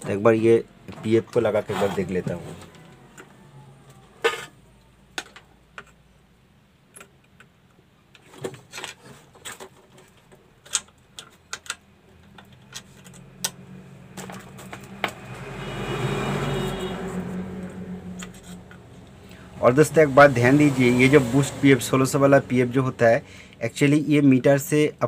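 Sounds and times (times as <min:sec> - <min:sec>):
tools clicking and tapping: 0:09.5 - 0:13.6.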